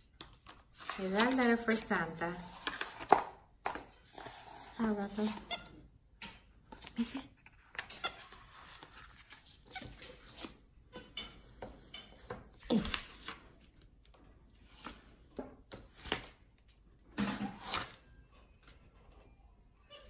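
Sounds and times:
paper rustling: 0:07.5 - 0:10.6.

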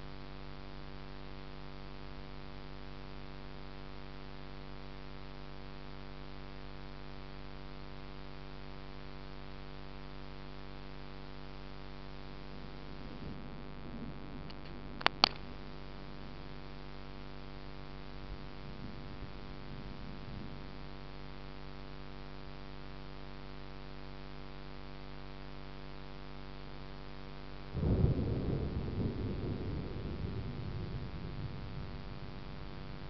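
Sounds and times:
electrical hum: 0:00.0 - 0:33.0
sharp clicks: 0:14.5 - 0:15.4
rolling thunder rumble: 0:27.8 - 0:33.0.

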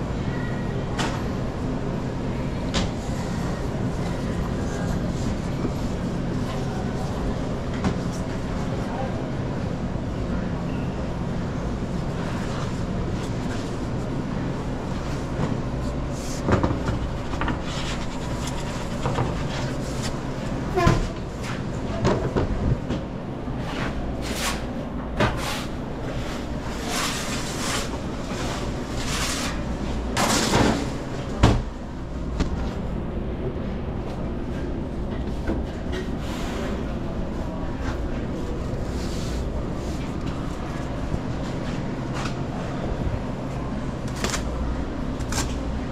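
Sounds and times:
low machinery hum: 0:00.0 - 0:45.9
scraping or rubbing sounds: 0:16.1 - 0:20.2, 0:25.4 - 0:30.7.

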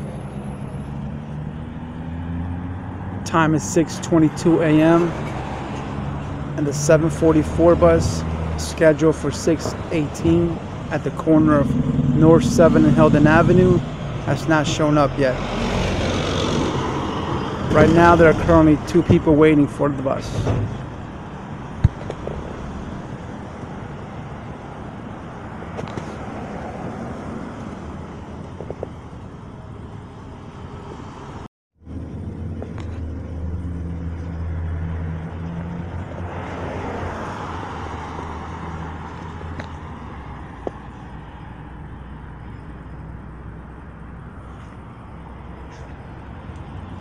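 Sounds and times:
background traffic noise: 0:00.0 - 0:47.0
cars passing: 0:00.0 - 0:47.0
low engine hum: 0:04.2 - 0:19.4, 0:31.8 - 0:37.0.

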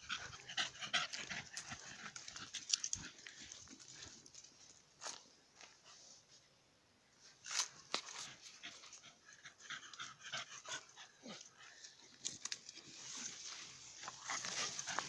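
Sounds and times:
dog panting: 0:00.0 - 0:04.1, 0:08.2 - 0:11.8
rustling leaves: 0:11.8 - 0:15.0.

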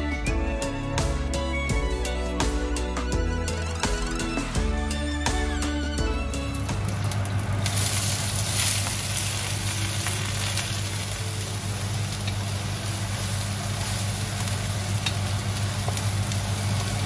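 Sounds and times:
prawn shells sizzling in a wok: 0:06.2 - 0:17.0.

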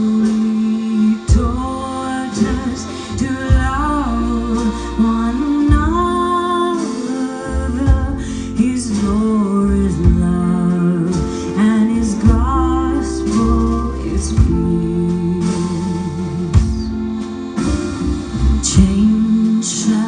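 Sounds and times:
double bass: 0:00.0 - 0:20.0
women singing in harmony: 0:00.0 - 0:20.0
accordion: 0:12.8 - 0:19.9.

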